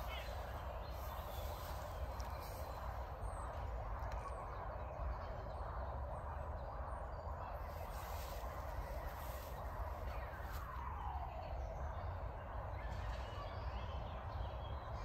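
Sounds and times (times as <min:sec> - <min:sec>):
faint bird chirps: 0:00.0 - 0:05.7.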